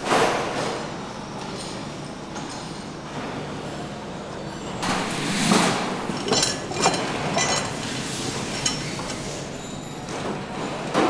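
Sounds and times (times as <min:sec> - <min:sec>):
factory floor noise: 0:00.0 - 0:11.0
sharp metal clanks of lever: 0:06.1 - 0:07.8.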